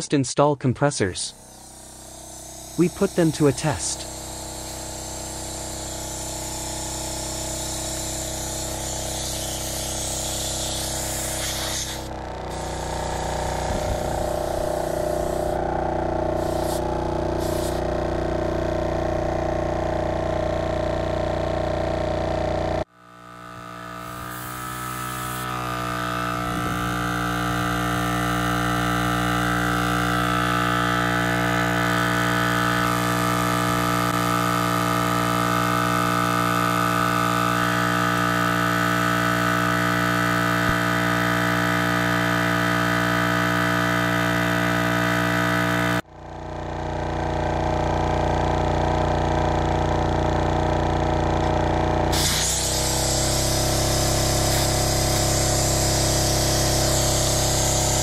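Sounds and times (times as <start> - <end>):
air compressor motor drone: 1.3 - 58.0
air hiss: 1.4 - 15.6, 16.3 - 17.8, 52.1 - 58.0.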